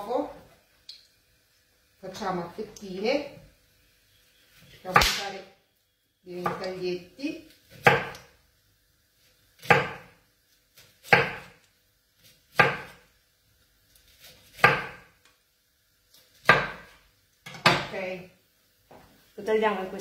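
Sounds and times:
knife slicing artichoke: 0:07.6 - 0:08.3, 0:09.6 - 0:11.6, 0:12.2 - 0:13.0, 0:13.9 - 0:15.2.

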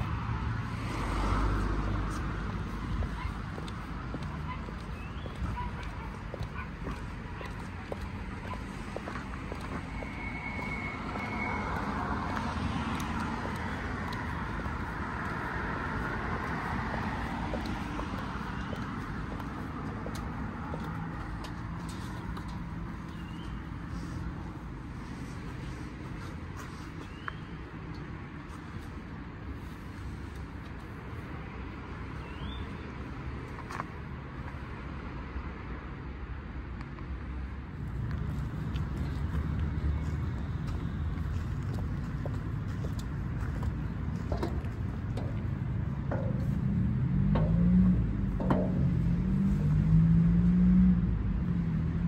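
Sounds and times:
cars driving past: 0:00.0 - 0:52.0
low rumble of road traffic: 0:00.0 - 0:52.0
heels clicking on pavement: 0:00.9 - 0:29.0, 0:37.8 - 0:50.7.

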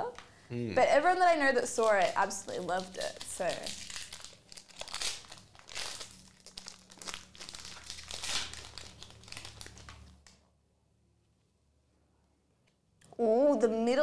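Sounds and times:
foil wrapper crinkling: 0:01.6 - 0:10.3.

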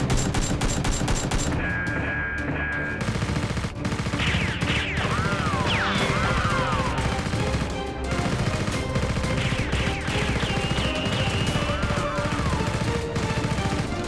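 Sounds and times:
background music: 0:00.0 - 0:14.0
machine-gun sound effect: 0:02.8 - 0:14.0.

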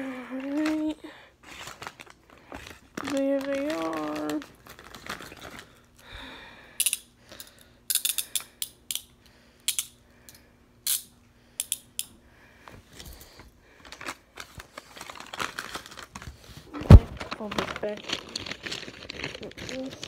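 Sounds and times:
handcuff clinks: 0:06.8 - 0:09.1
handcuff ratchet clicks: 0:06.8 - 0:09.1, 0:09.7 - 0:12.1.

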